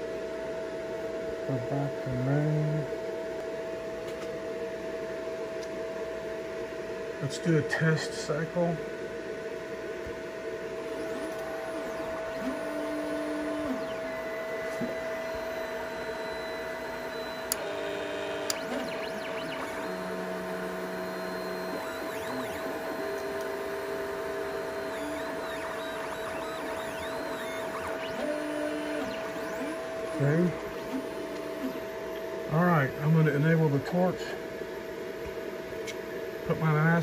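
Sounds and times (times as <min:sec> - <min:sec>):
steady hum: 0:00.1 - 0:37.0
stepper motors whining: 0:10.7 - 0:33.4.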